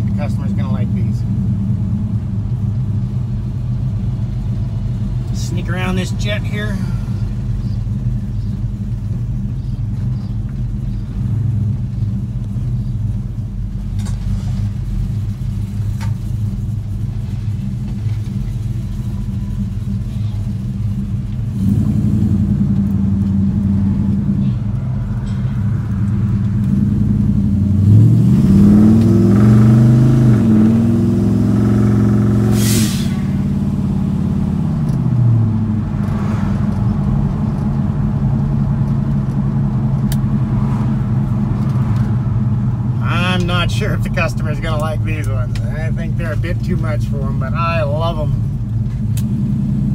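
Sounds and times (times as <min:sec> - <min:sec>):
brief hiss: 0:32.5 - 0:33.4.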